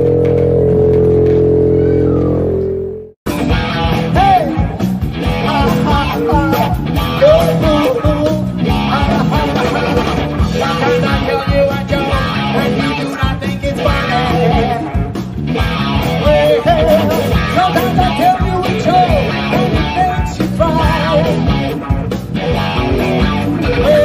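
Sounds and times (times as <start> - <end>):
wavering melody line: 0.0 - 3.2
rock band playing: 0.0 - 24.0.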